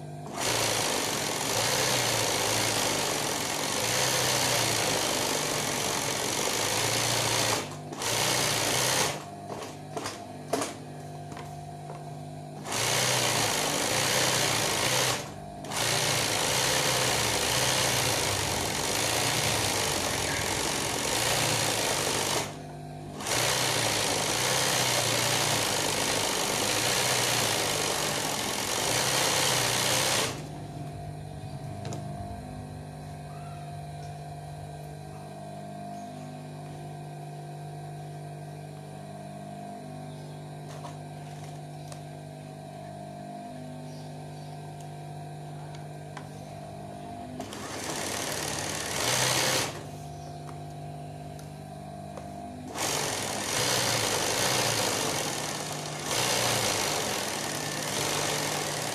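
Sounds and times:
electric motor hum: 0:00.0 - 0:58.9
sewing machine stitching: 0:00.2 - 0:10.8, 0:12.6 - 0:30.5, 0:47.3 - 0:49.9, 0:52.7 - 0:58.9.

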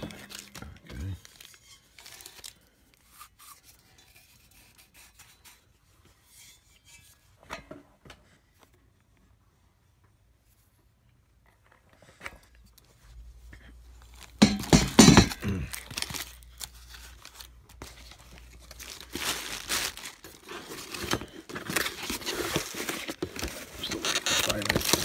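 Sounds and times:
cardboard rustling and tearing: 0:14.0 - 0:25.0.

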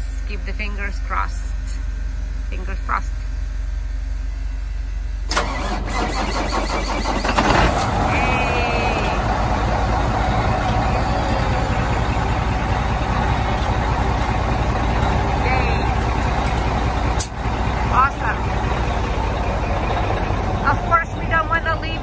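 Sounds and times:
diesel engine idling: 0:00.0 - 0:22.0
diesel truck engine cranking: 0:05.2 - 0:22.0.

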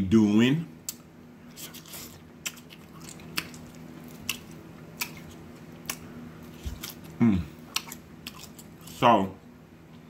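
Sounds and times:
faint steady hum: 0:00.0 - 0:10.0
wet chewing mouth smacks: 0:01.7 - 0:08.7.

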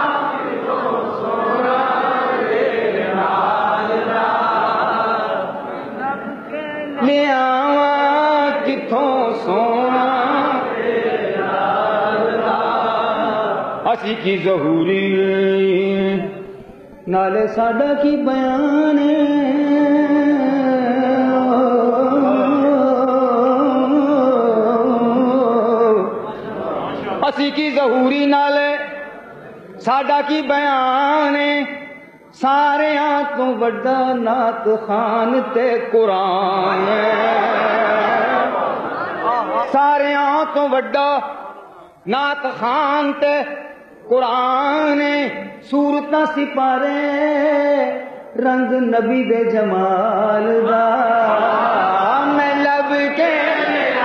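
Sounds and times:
male voices chanting together: 0:00.0 - 0:15.5, 0:34.3 - 0:40.5, 0:50.6 - 0:54.0
man singing unaccompanied: 0:00.0 - 0:26.3, 0:27.0 - 0:29.1, 0:29.8 - 0:38.4, 0:39.4 - 0:54.0.

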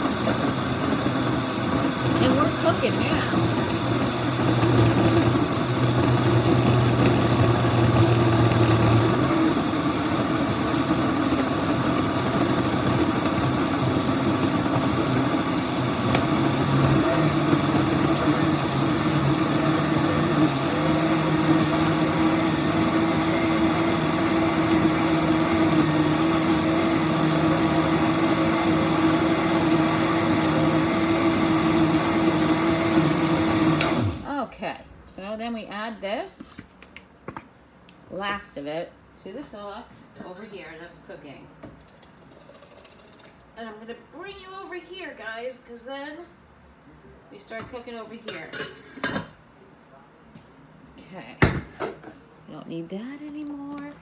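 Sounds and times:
blender motor running: 0:00.0 - 0:34.3.

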